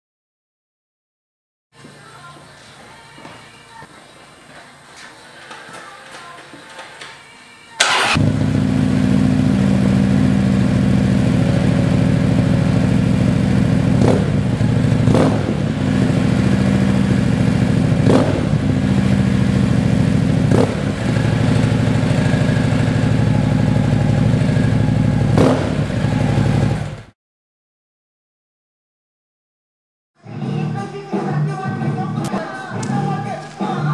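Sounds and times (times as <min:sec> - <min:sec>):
motorcycle engine revving: 0:07.8 - 0:27.1
motorcycle engine idling: 0:07.9 - 0:27.1.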